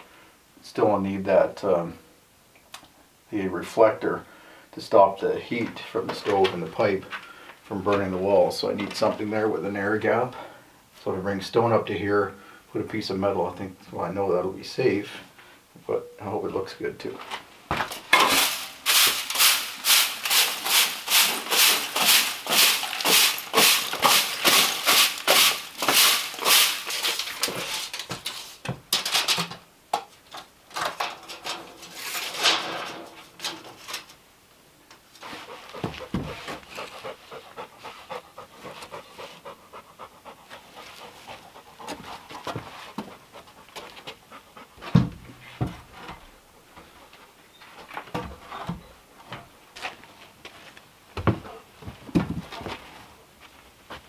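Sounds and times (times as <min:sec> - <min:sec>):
dog panting: 0:35.3 - 0:45.0.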